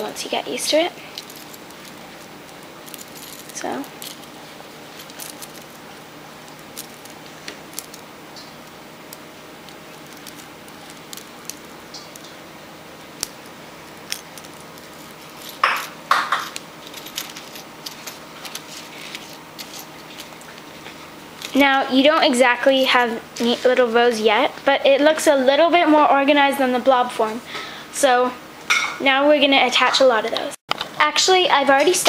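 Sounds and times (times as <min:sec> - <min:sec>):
metal tabs clicking and clinking: 0:05.0 - 0:05.8, 0:09.9 - 0:12.2, 0:14.0 - 0:20.6.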